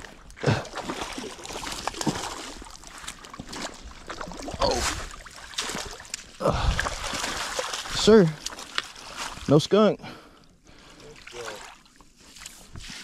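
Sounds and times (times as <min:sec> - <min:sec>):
water noise: 0:00.0 - 0:13.0.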